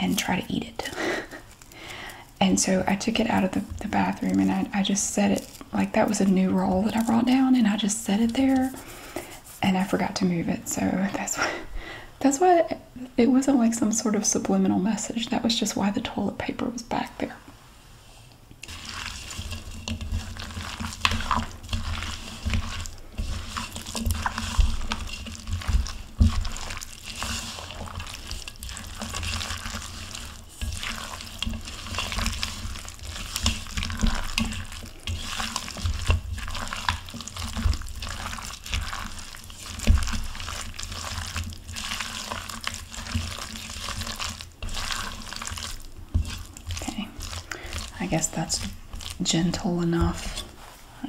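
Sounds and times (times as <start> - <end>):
utensil squishing wet mixture: 0.0 - 11.4, 18.3 - 51.0.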